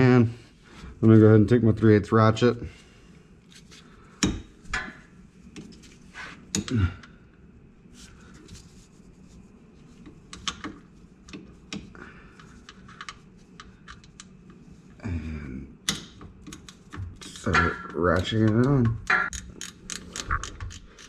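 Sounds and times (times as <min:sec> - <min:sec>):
hand tools and metal parts clicking: 0:15.9 - 0:21.0.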